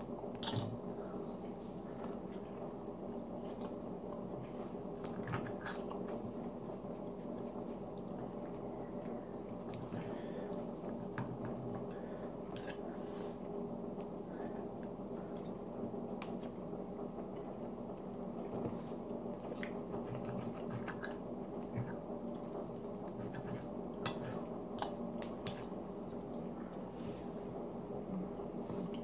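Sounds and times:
low hum: 0.0s - 29.0s
person chewing food: 1.8s - 6.3s.

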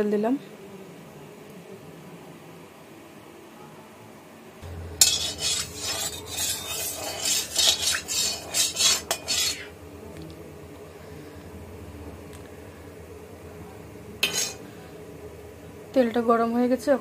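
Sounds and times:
low steady hum: 4.6s - 17.0s
metal spatula scraping metal pan: 4.7s - 9.8s, 14.2s - 15.0s.

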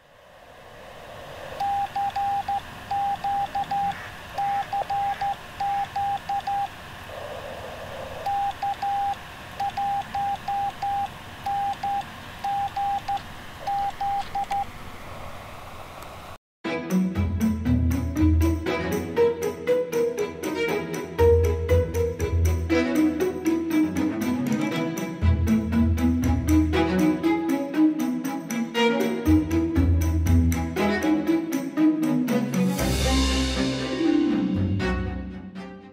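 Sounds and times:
steady radio hiss: 0.0s - 16.4s
morse code beeping tone: 1.6s - 6.7s, 8.3s - 14.6s.

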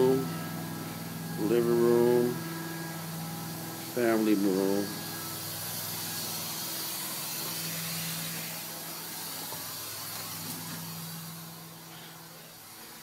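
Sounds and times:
cleaning machine humming: 0.0s - 13.0s
hiss of air: 4.8s - 13.0s.

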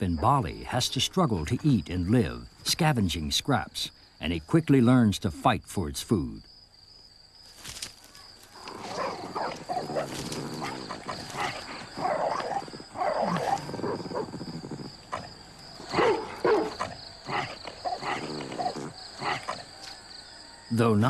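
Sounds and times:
dogs growling and snarling: 8.6s - 19.7s.

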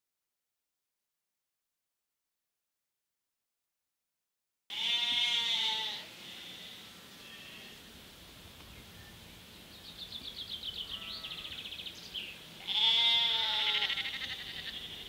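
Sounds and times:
sheep bleating: 4.7s - 7.8s, 12.6s - 15.0s.

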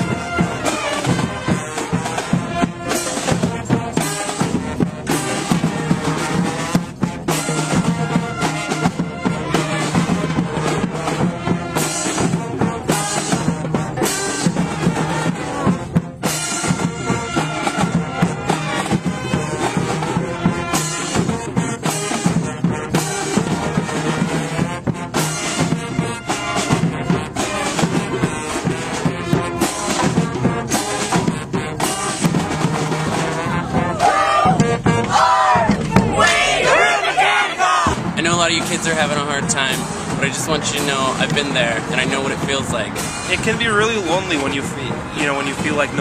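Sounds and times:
brass band playing: 0.0s - 46.0s
drum hits: 15.8s - 46.0s.

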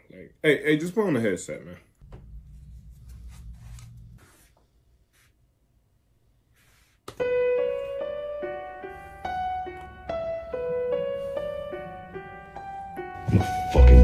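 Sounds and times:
low hum: 2.0s - 5.0s
piano rap beat with bass: 9.3s - 14.0s.

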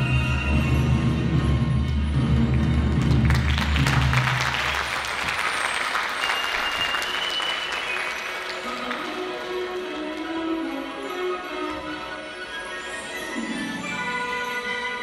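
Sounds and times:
audience applauding: 2.5s - 10.8s.

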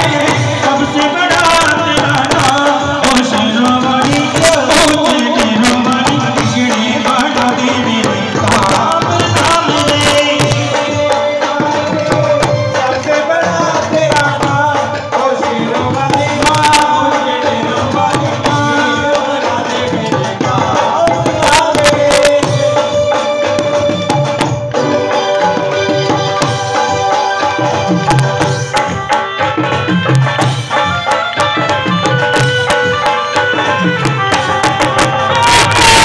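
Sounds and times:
electronic keyboard melody: 21.0s - 36.0s.

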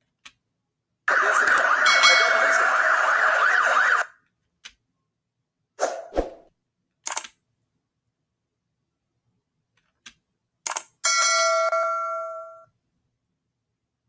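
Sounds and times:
bell-like chime: 1.9s - 2.6s, 11.1s - 12.7s
short clicks: 7.0s - 7.4s.

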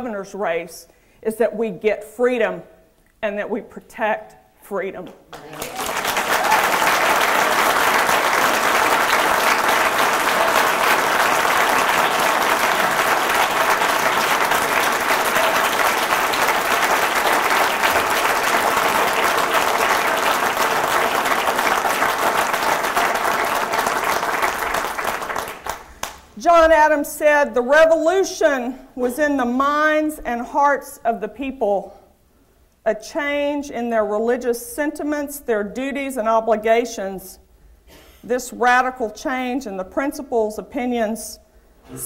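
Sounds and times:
crowd applauding: 5.3s - 26.3s.

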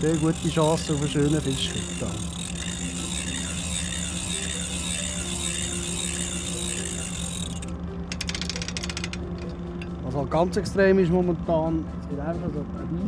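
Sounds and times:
low hum: 0.0s - 8.2s
ratchet clicks: 0.0s - 9.9s
winch spool whirring: 0.0s - 11.7s.

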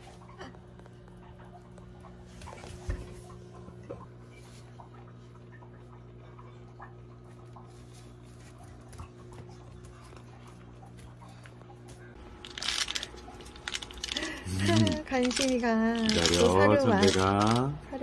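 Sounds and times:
plastic bottle crinkling: 12.4s - 17.6s.

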